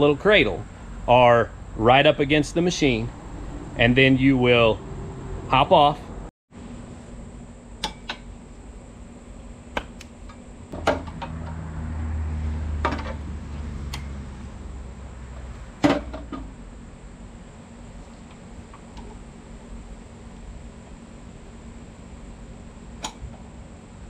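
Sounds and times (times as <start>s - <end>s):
steady low hum: 0.0s - 24.0s
low rumble: 0.6s - 6.3s.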